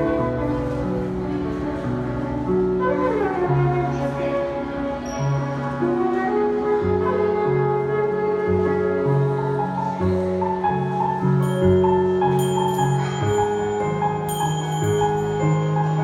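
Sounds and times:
electronic keyboard playing: 11.0s - 16.0s.

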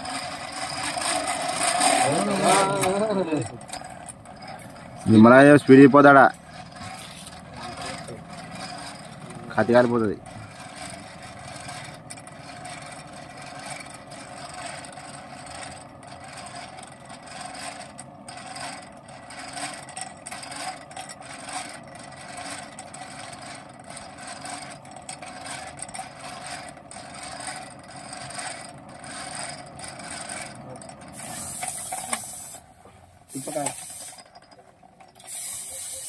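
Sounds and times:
blade scraping in coals: 0.0s - 13.8s, 23.2s - 32.7s, 33.3s - 34.4s
forge air blower running: 0.0s - 34.3s.

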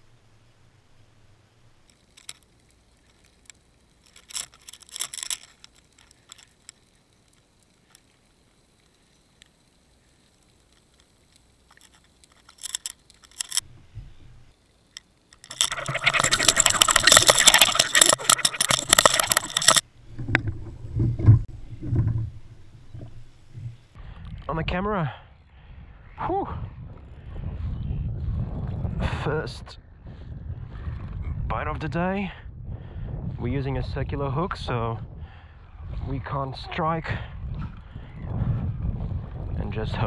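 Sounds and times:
fishing reel drag clicking: 1.8s - 13.7s, 14.6s - 19.9s
faint clicks and scrapes: 1.8s - 24.5s.

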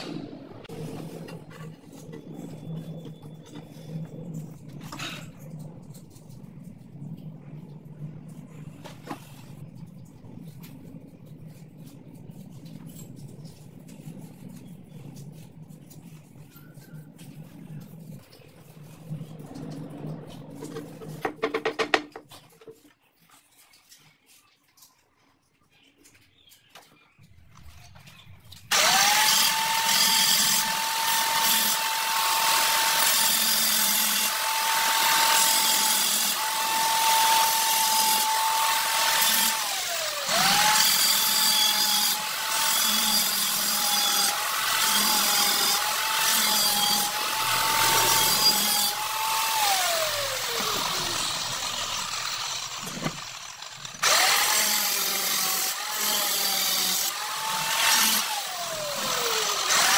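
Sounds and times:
power tool motor whine: 28.7s - 59.9s.

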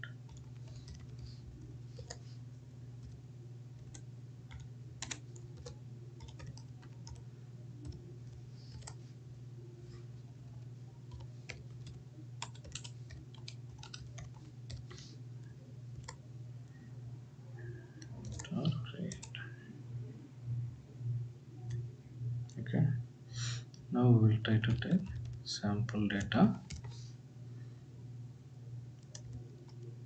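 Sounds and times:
steady low hum: 0.0s - 30.0s
computer keyboard key clicks: 3.8s - 7.2s, 11.1s - 15.0s, 18.2s - 18.5s.

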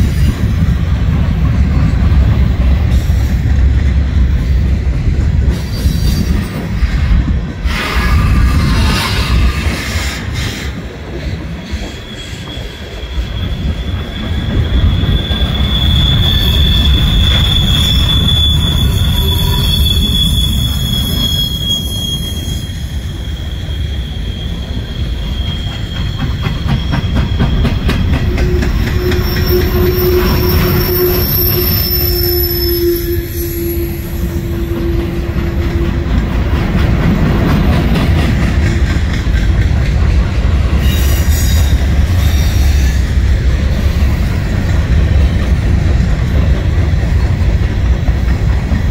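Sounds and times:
train wheels rumbling on rail: 0.0s - 48.9s
wheel squeal: 11.6s - 36.6s.

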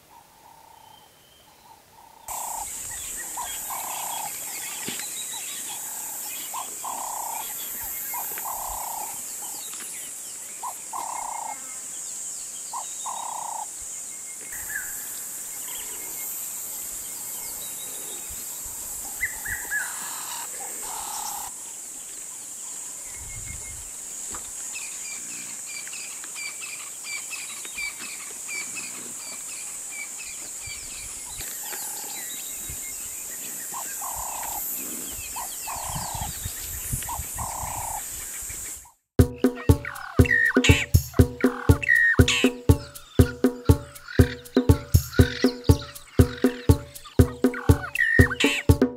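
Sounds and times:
insects droning: 2.2s - 38.8s, 39.7s - 48.6s
high bird chirps: 39.2s - 48.8s
hooting calls: 39.4s - 48.8s.

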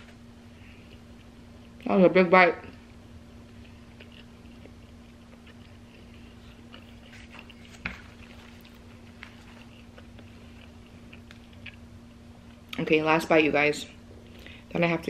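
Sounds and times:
steady low hum: 0.0s - 15.0s
person chewing food: 0.6s - 1.8s, 3.4s - 11.9s.

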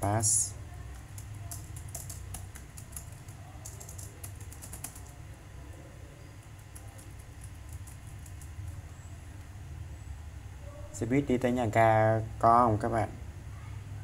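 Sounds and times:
steady low hum: 0.0s - 14.0s
computer keyboard typing: 0.8s - 5.2s, 6.4s - 8.9s.

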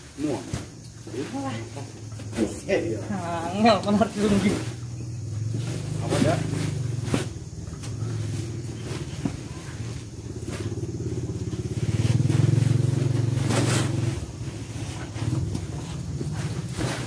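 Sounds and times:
vehicle engine running: 3.2s - 17.0s.

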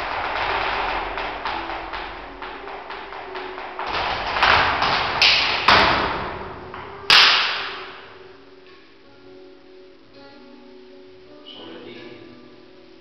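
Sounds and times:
sharp foot stamps: 0.0s - 8.1s.

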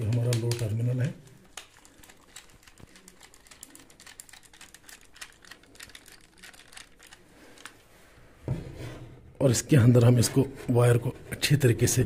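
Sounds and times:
hands working wires clicking: 0.0s - 7.8s.

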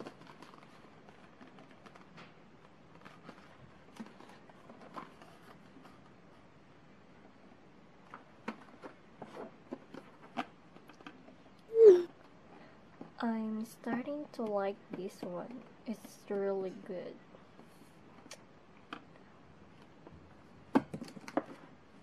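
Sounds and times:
boxes handled with light clicks: 0.0s - 6.4s, 8.0s - 11.4s.

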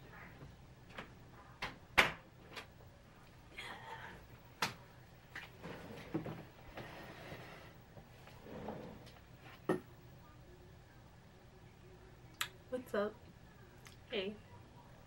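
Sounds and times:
faint rustling and shuffling: 4.1s - 9.7s.

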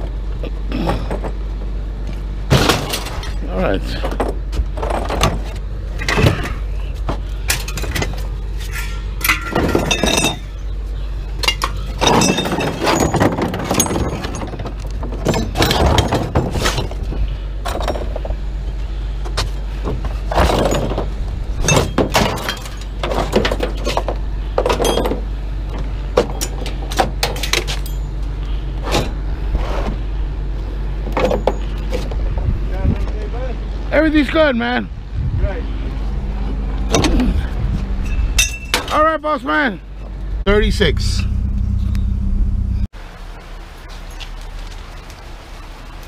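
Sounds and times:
steady low rumble: 0.0s - 34.2s, 34.8s - 39.0s, 39.8s - 46.0s
scrap metal clanking onto pile: 7.5s - 10.5s, 11.4s - 17.0s, 20.3s - 25.2s.

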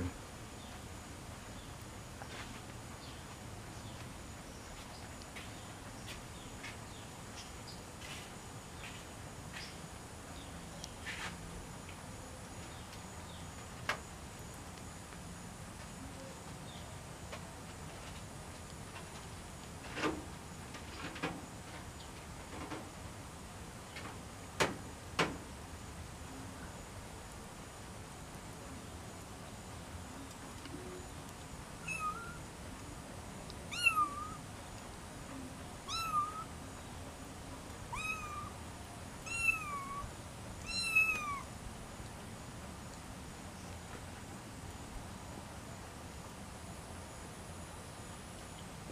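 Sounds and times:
young animal mewing: 39.3s - 40.1s, 40.7s - 41.5s.

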